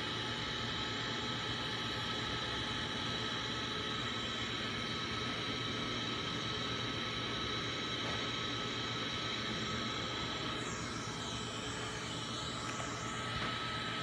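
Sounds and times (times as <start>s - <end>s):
key-cutting machine whirring: 0.0s - 4.8s.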